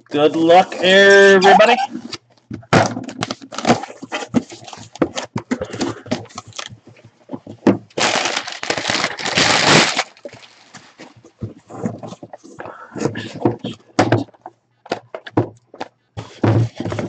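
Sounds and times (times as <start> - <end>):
cardboard flaps crackling and snapping: 2.6 - 12.3
packing paper rustling: 3.0 - 12.6.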